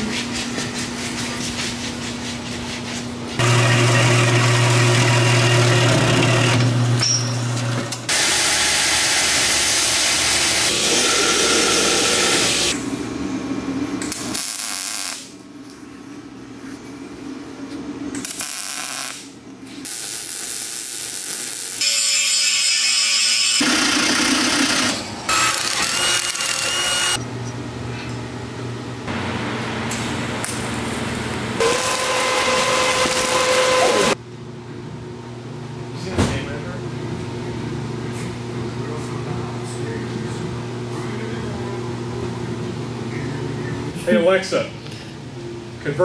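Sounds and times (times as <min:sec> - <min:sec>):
arc welding: 0:14.0 - 0:15.3, 0:18.2 - 0:27.2, 0:31.6 - 0:34.2
belt grinder grinding steel: 0:21.8 - 0:27.2
power tool motor humming: 0:23.2 - 0:27.2.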